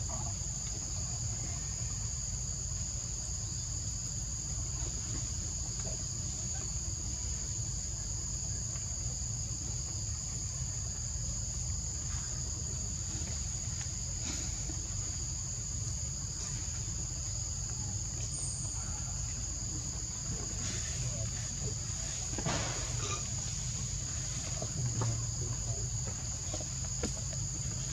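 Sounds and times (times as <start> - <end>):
forest insects shrilling: 16.3 - 27.9.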